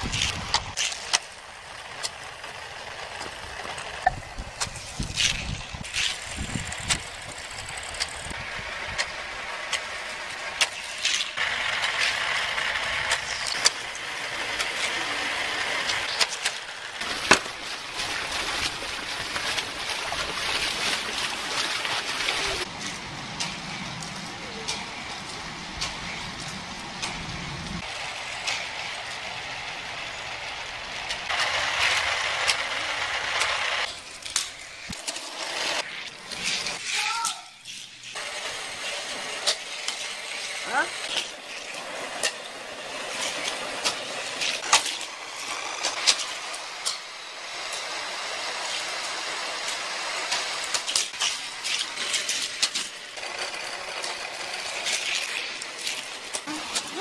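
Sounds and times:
toy car rattling on plastic track: 31.1s - 57.0s.

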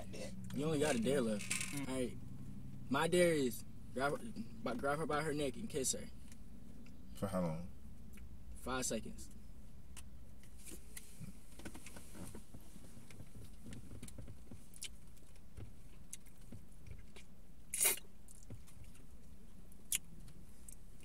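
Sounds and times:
low steady hum: 0.0s - 21.0s
small rustles: 10.4s - 17.3s.

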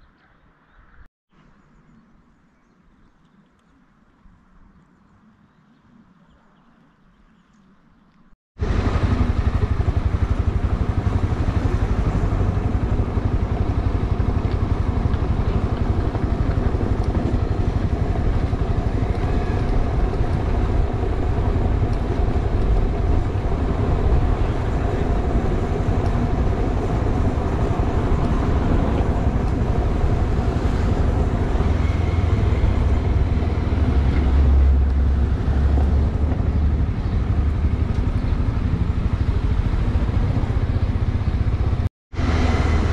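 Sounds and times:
wind: 0.0s - 42.9s
motorcycle engine cruising: 8.6s - 42.9s
road rush: 8.6s - 42.9s.

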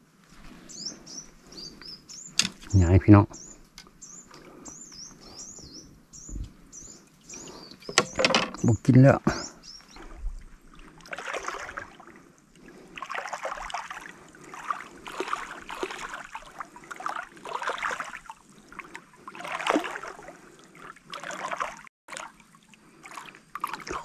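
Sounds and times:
water splashing against a boat: 9.9s - 24.0s.

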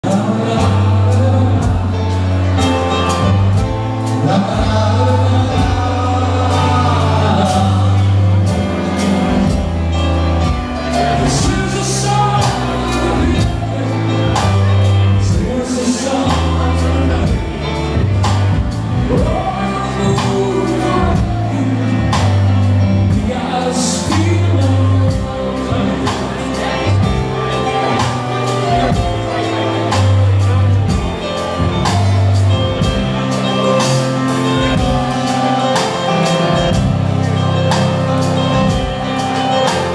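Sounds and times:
drum kit beat: 0.0s - 39.9s
man singing: 0.0s - 39.9s
stage piano: 0.0s - 39.9s.

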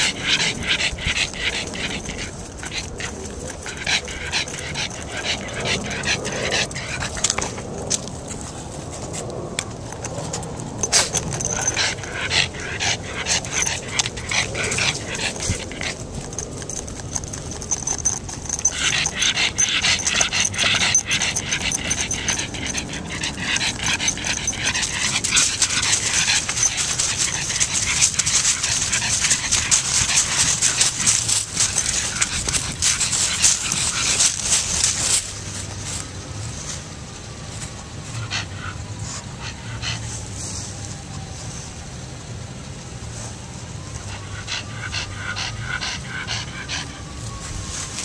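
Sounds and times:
dog panting: 0.0s - 35.9s, 37.7s - 40.4s, 43.8s - 47.5s
small clicks and rustles: 0.0s - 37.9s.

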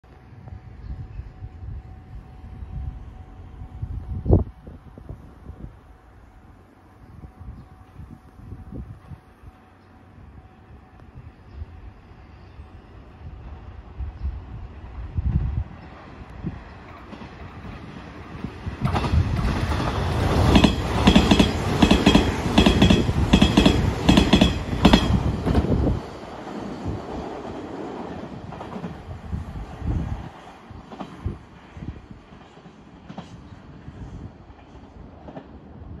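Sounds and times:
train wheels clattering over rail joints: 16.8s - 25.9s.

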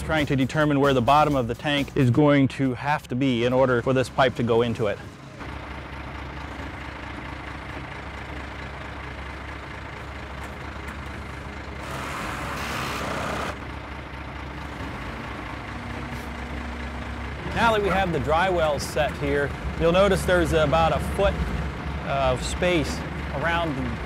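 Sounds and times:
truck engine running: 0.0s - 24.0s
loud hiss: 11.8s - 13.6s.

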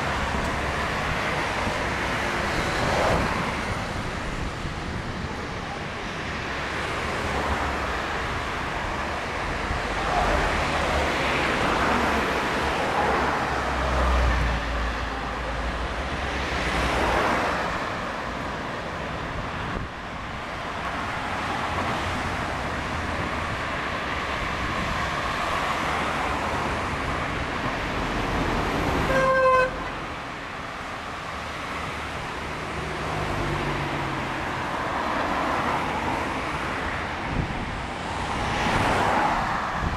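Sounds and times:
cars driving past: 20.7s - 39.9s
car horn honk: 29.0s - 30.0s.

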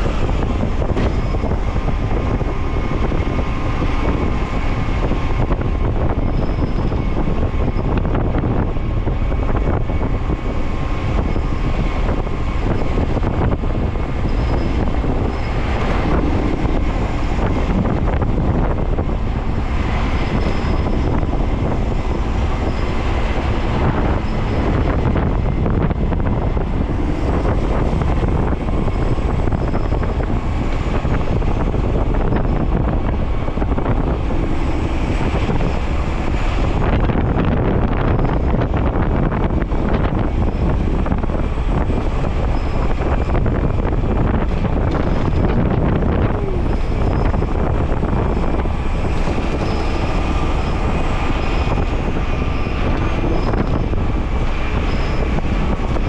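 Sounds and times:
truck engine and road noise: 0.0s - 56.0s
wind buffeting microphone: 0.0s - 56.0s.

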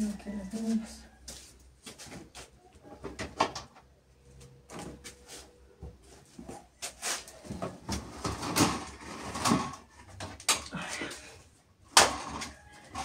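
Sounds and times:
rustling and scraping: 0.4s - 3.3s, 4.3s - 11.4s.

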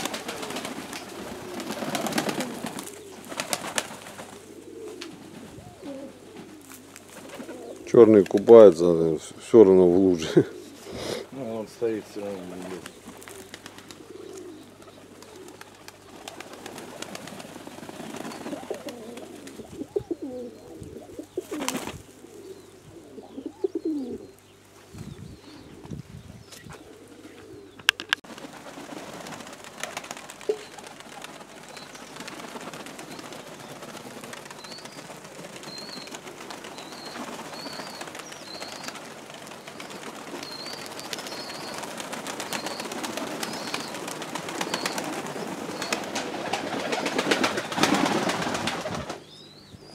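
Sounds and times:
outdoor hiss: 0.0s - 27.6s
pigeons cooing: 0.0s - 49.3s.

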